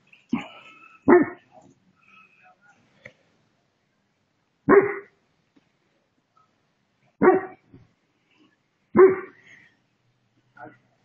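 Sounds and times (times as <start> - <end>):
dog barking: 1.1 - 1.4, 4.7 - 5.2, 7.2 - 7.6, 9.0 - 9.4.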